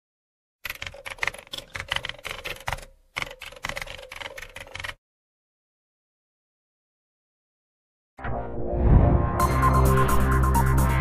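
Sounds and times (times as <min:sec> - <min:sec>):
typewriter keys clacking: 0:00.6 - 0:05.0.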